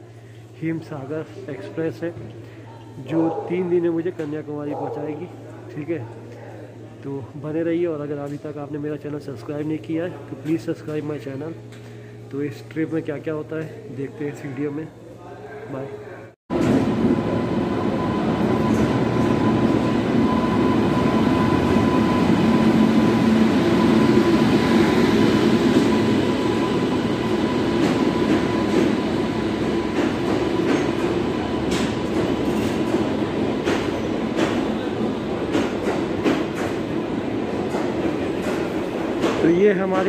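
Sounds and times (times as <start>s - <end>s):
train coaches rumbling past: 16.5s - 40.0s
thin steady whine: 16.6s - 30.0s.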